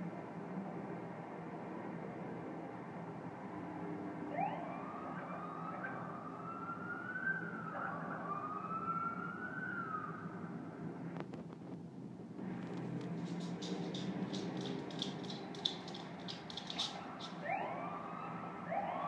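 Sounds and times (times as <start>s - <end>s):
road traffic hum: 0.0s - 19.0s
police siren wailing: 4.2s - 10.6s, 16.0s - 19.0s.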